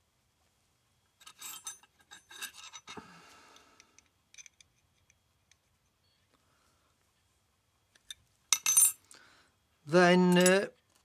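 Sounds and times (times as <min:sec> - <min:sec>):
metal fittings clicking and scraping: 0:01.2 - 0:03.0.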